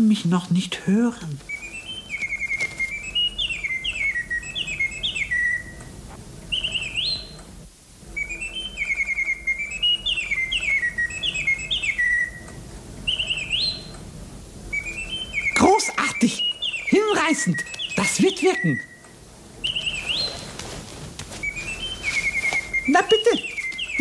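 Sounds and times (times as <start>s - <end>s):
nightingale singing: 1.2s - 7.5s, 8.1s - 14.0s, 14.6s - 24.0s.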